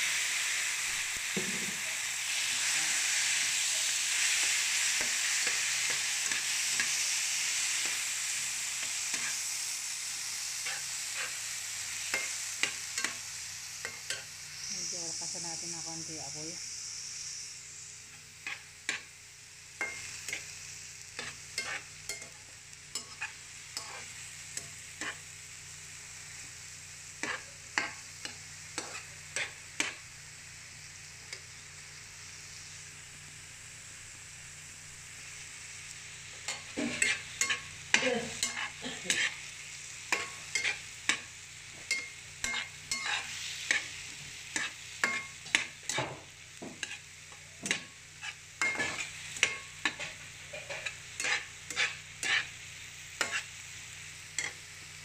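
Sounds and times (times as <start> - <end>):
vegetables sizzling in oil: 0.0 - 55.0
metal spatula scraping a pan: 8.9 - 9.4, 10.6 - 11.4, 18.1 - 19.1, 21.2 - 25.2, 27.2 - 30.0, 36.4 - 52.6, 53.2 - 53.6, 54.4 - 54.6.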